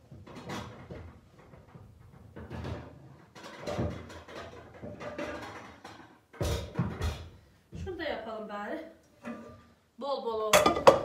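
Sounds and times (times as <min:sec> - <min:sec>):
metal cookware clattering: 0:02.4 - 0:07.1, 0:10.5 - 0:11.0.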